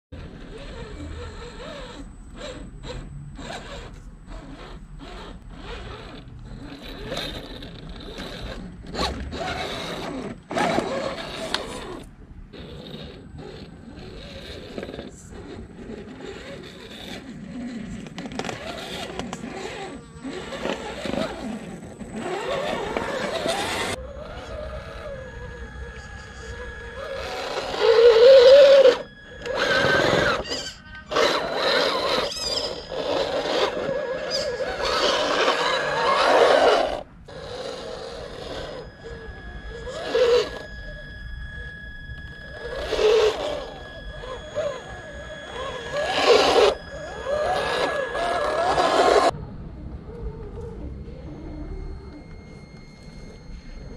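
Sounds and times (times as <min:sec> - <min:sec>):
toy truck electric motor whine: 0:00.2 - 0:49.4, 0:50.1 - 0:53.9.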